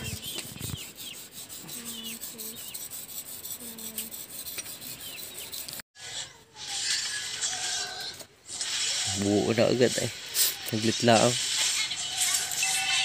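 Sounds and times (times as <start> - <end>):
hand tool scraping wood: 0.0 - 5.8
small birds chirping: 0.0 - 8.2.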